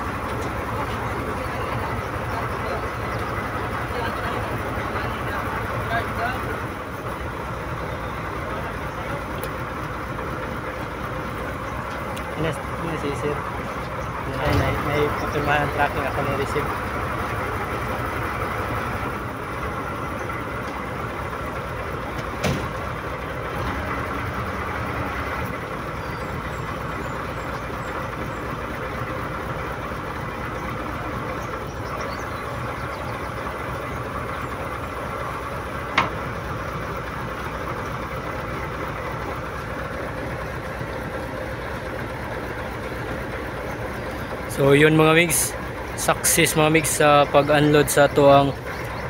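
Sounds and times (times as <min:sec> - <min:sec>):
crane truck engine running: 0:00.0 - 0:49.0
short knock: 0:22.4 - 0:22.8.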